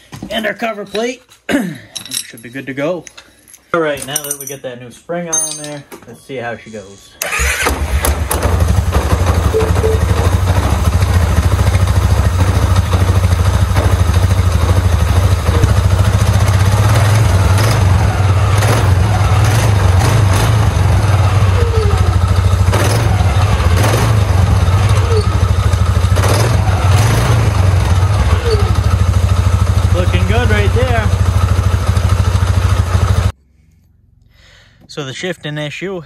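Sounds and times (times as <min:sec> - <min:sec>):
quad bike engine running: 0:07.3 - 0:33.3.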